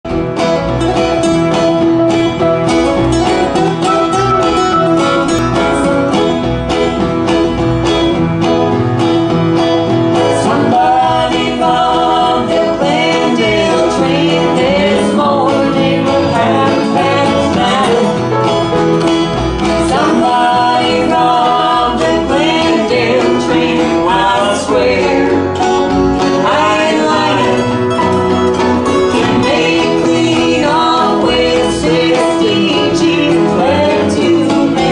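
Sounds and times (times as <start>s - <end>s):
strummed acoustic guitars: 0.1s - 34.9s
harmonica: 0.6s - 7.8s
woman singing lead vocal: 10.3s - 18.2s, 19.8s - 25.5s, 26.3s - 27.8s, 29.1s - 34.9s.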